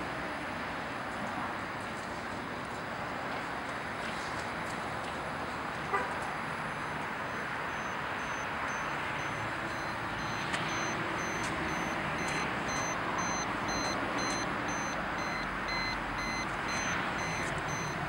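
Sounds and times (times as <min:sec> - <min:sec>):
short high electronic beeps: 0:06.8 - 0:18.0.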